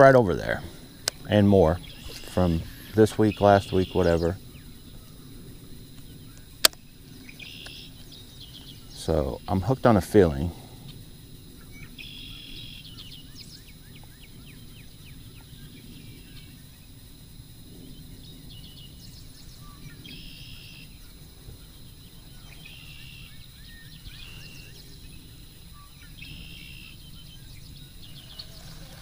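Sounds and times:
bird chattering trills: 0.0 - 5.2, 25.7 - 29.0
birds singing: 0.0 - 29.0.

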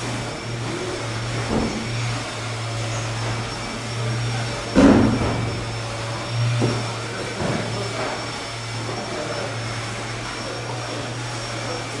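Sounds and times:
electric blower fan humming: 0.0 - 12.0.

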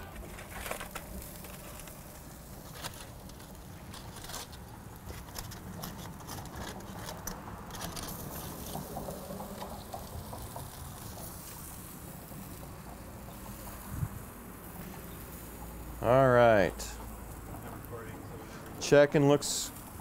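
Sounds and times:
aluminium foil crinkling: 0.0 - 9.2.

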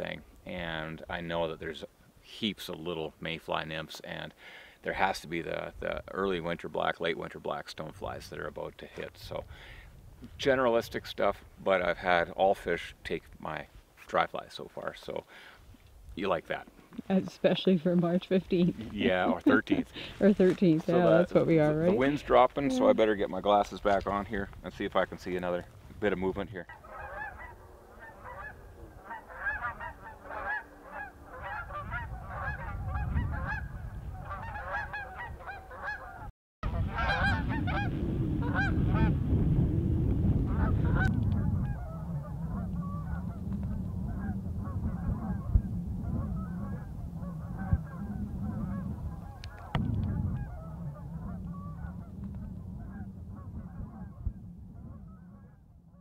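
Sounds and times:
low wind rumble: 4.9 - 13.7, 15.0 - 56.0
geese honking: 26.7 - 39.1, 40.5 - 55.6.

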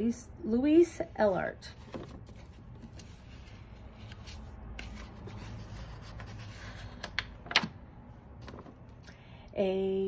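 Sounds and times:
book pages turning: 1.7 - 7.7, 8.4 - 8.9.

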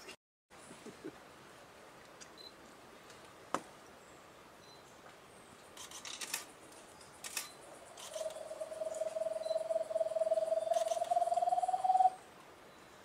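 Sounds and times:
bird singing low hollow trill: 6.9 - 13.0
sharp clicks: 7.2 - 8.4.

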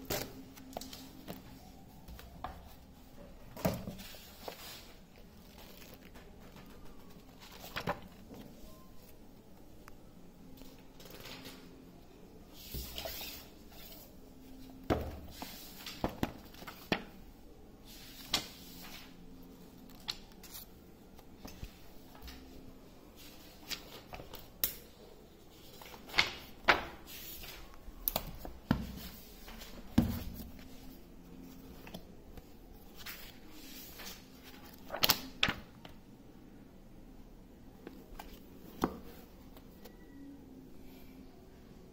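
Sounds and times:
pages rustling: 3.6 - 8.9, 17.9 - 22.6, 25.6 - 36.0
books knocking and thumping: 14.8 - 17.2, 28.2 - 30.6.

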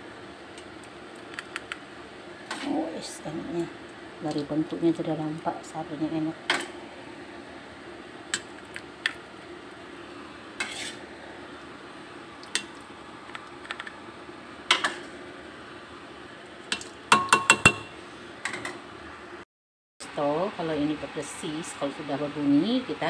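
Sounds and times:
spoon scraping metal pot: 10.6 - 11.0.

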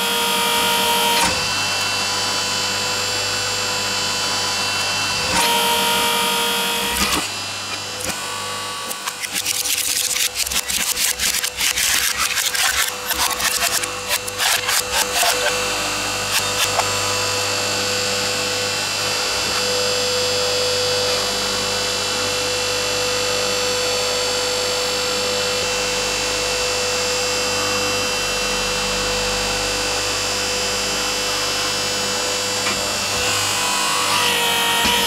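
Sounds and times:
hydraulic pump whine: 0.0 - 35.0
plastic cracking: 8.9 - 15.6.

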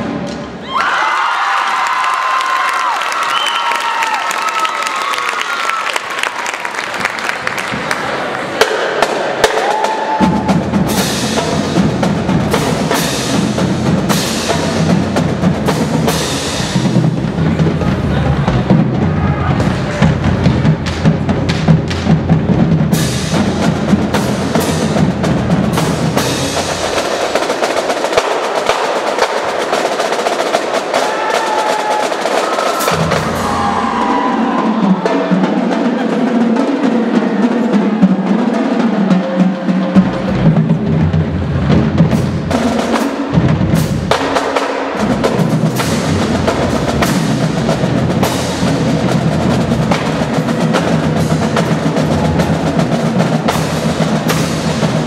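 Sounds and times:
snare drums: 1.8 - 55.0
bass drums: 9.1 - 27.8, 32.9 - 34.6, 39.9 - 55.0.

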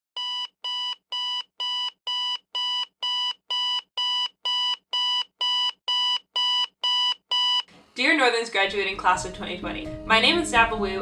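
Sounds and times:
alarm clock beeping: 0.2 - 7.7.

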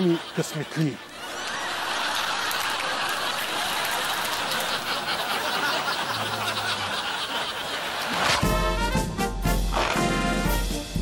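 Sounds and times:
audience laughing: 0.0 - 8.8.

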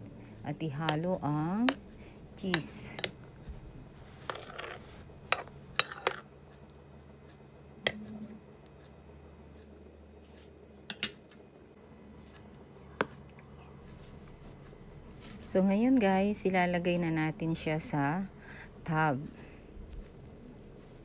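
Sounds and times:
spoon scraping bowl: 4.0 - 6.3.

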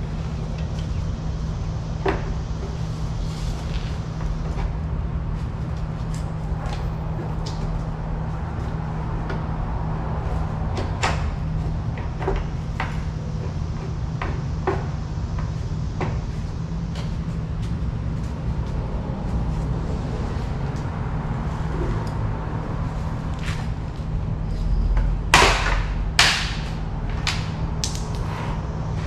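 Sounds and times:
steady low hum: 0.0 - 29.0
knocks and clunks of fan assembly: 10.7 - 16.3.

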